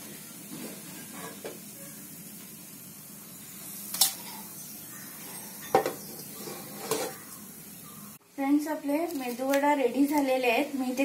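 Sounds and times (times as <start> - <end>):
hot oil sizzling: 0.0 - 11.0
kitchen utensils clinking: 5.4 - 7.3.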